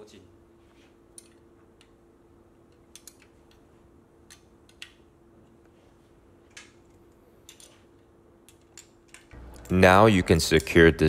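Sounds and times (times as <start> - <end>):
faint steady hum: 0.0 - 11.0
wrench clicking on metal: 2.7 - 3.6.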